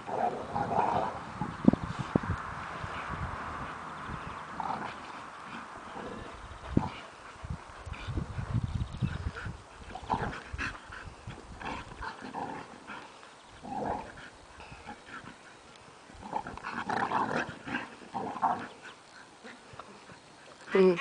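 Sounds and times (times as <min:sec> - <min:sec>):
dogs growling: 0:00.0 - 0:01.6, 0:04.2 - 0:08.2, 0:09.0 - 0:21.0.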